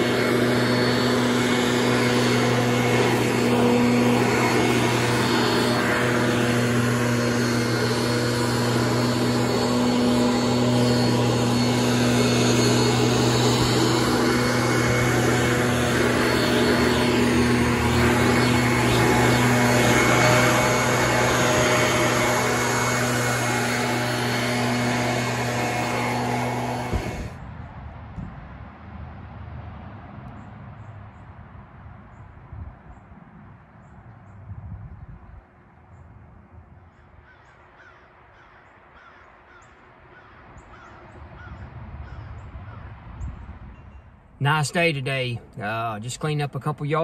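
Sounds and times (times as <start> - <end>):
leaf blower running: 0.0 - 27.5, 44.4 - 47.0.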